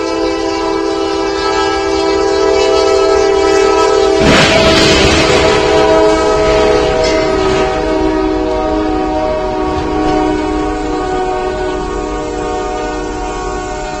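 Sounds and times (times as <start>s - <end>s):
locomotive air horn: 0.0s - 14.0s
crashing and scraping metal: 4.2s - 7.9s.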